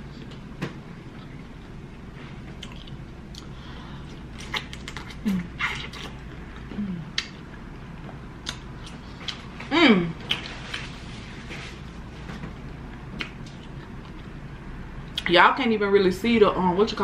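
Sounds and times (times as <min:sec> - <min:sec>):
wet mouth clicks and lip smacks: 0:04.4 - 0:06.2
person humming: 0:06.7 - 0:07.2, 0:09.7 - 0:10.2.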